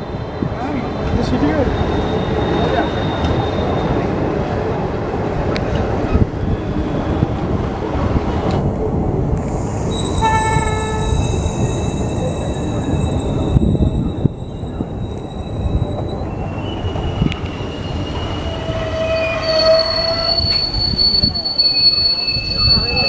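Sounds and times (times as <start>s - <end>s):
train brakes squealing: 0.0s - 4.2s, 9.4s - 23.0s
low train rumble: 0.0s - 23.0s.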